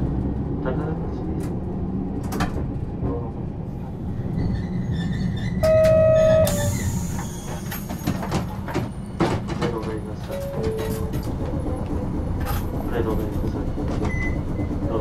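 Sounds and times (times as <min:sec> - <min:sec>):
tram wheels rumbling on rails: 0:00.0 - 0:15.0
tram horn: 0:05.6 - 0:06.8.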